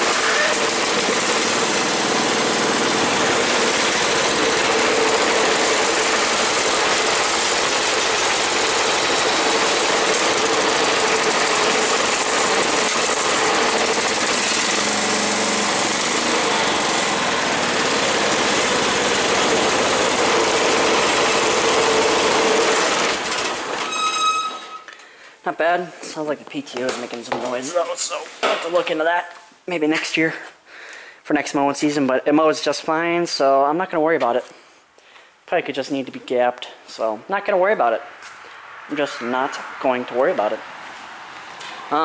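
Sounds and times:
lawn tractor engine running: 0.0s - 24.7s.

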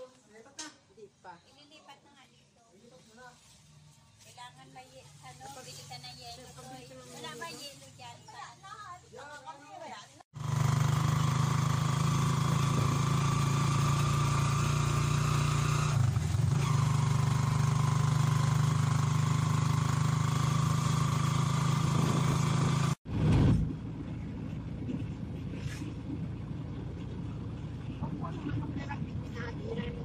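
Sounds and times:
vehicle engine droning: 10.4s - 30.0s
quiet rumble: 23.1s - 30.0s.

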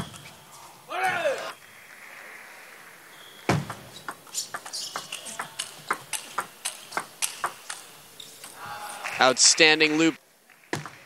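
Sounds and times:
table tennis ball clicks: 3.6s - 8.6s.

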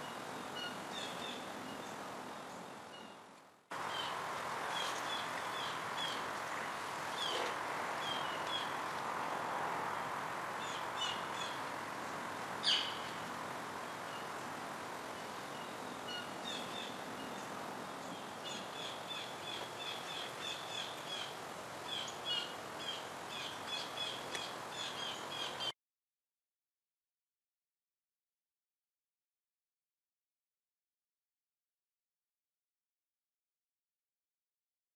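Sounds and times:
outdoor background hiss: 0.0s - 25.7s
small birds chirping: 3.8s - 25.7s.

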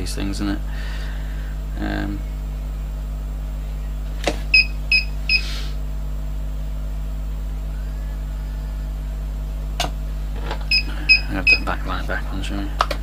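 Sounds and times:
inverter humming: 0.0s - 13.0s
short high electronic beeps: 4.6s - 5.5s.

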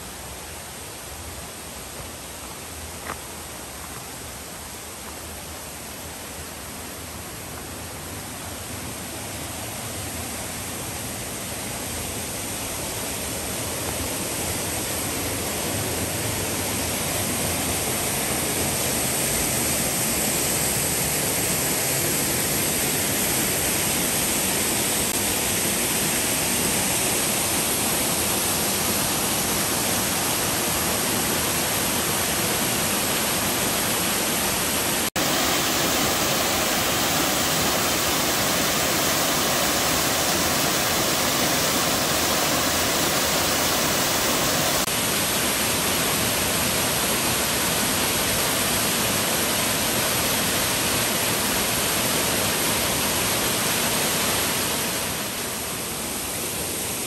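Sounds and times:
waterfall rushing: 17.4s - 56.9s.

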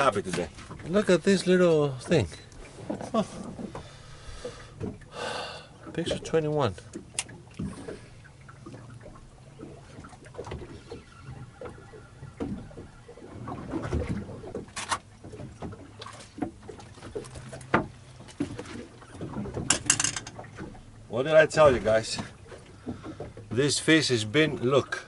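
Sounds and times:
water against boat hull: 0.0s - 25.0s
fishing gear knocks and clicks: 6.9s - 7.8s, 16.4s - 20.8s.

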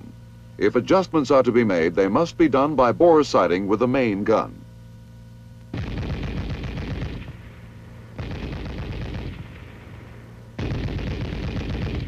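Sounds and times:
machine gun bursts: 5.8s - 7.4s, 8.2s - 9.8s, 10.6s - 12.0s.

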